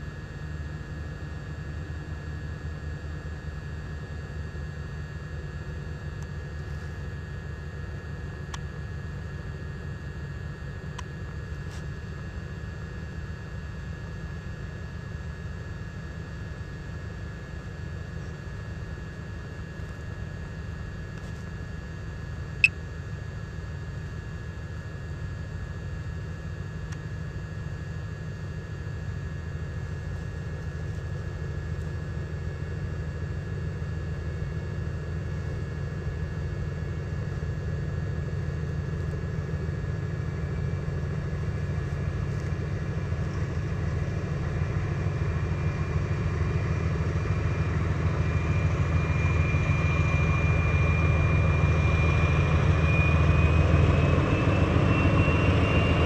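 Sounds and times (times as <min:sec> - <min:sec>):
thin whine: 0:26.8 - 0:56.0
train engine running: 0:39.6 - 0:56.0.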